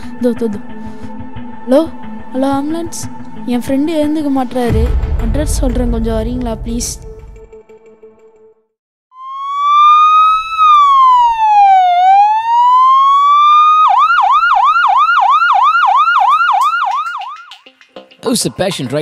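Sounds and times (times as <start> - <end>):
ambulance siren wailing and yelping: 9.2 - 17.6.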